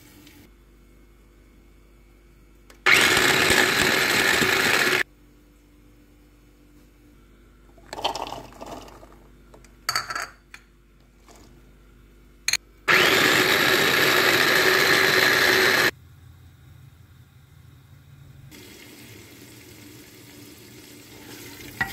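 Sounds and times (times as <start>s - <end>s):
electric food chopper running: 2.9s - 5.0s, 12.9s - 15.9s.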